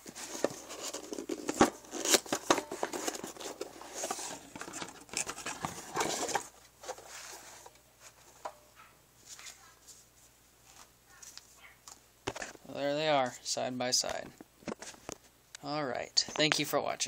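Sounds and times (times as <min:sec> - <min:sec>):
cardboard box rustling and scraping: 0:00.0 - 0:08.3.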